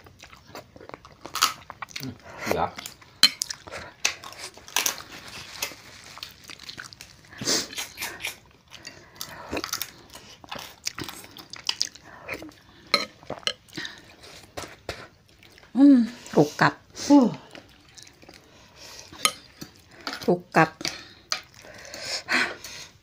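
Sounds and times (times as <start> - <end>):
crunching and chewing: 0.0 - 15.8.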